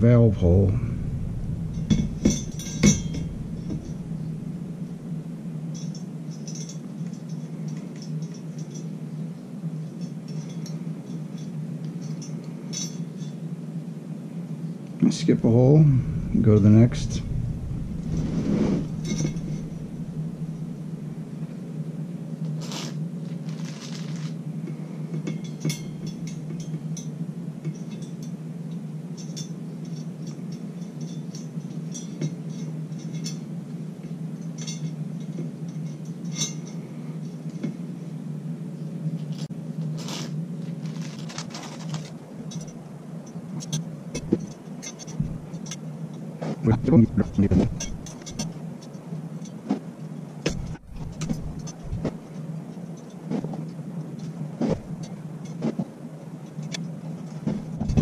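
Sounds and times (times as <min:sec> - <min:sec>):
steady low hum: 0:00.0 - 0:58.0
metal spokes clicking and scraping: 0:00.8 - 0:08.9, 0:16.0 - 0:21.4, 0:22.5 - 0:24.4, 0:39.2 - 0:42.8, 0:46.9 - 0:49.6, 0:50.5 - 0:53.5.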